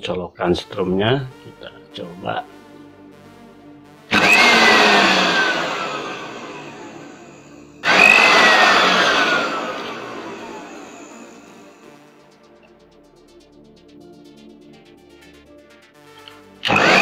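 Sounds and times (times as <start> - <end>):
blender motor whining: 4.1 - 12.0, 16.2 - 17.0.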